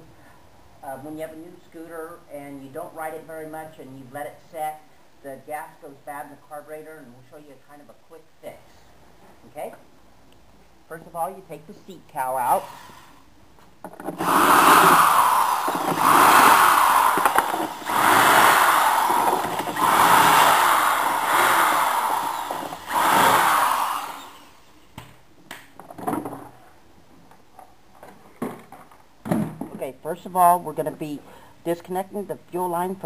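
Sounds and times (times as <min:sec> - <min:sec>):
cordless drill running: 0:12.4 - 0:13.1, 0:14.1 - 0:24.8.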